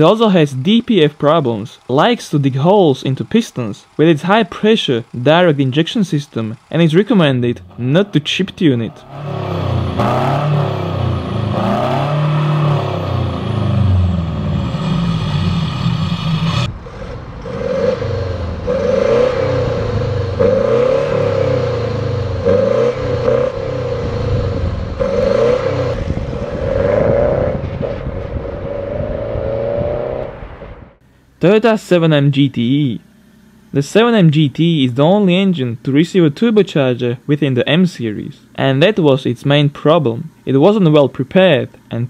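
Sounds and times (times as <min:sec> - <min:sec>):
diesel engine revving: 0:00.0 - 0:39.0
car accelerating away: 0:07.6 - 0:31.0.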